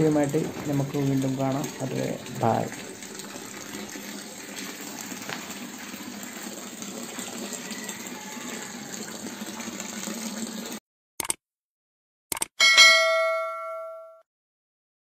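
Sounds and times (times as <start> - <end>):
water jet splashing into pond: 0.0 - 10.8.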